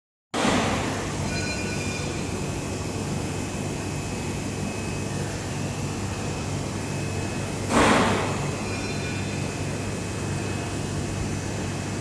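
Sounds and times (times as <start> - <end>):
loud burst of noise: 0.4 - 1.2, 7.7 - 8.5
machine tools humming with whine: 0.4 - 12.0.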